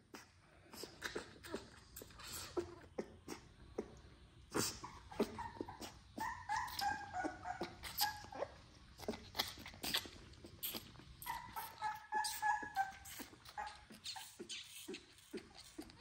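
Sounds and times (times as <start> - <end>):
puppy sucking on a bottle: 0.1 - 16.0
puppy whimpering: 4.6 - 9.6, 11.2 - 16.0.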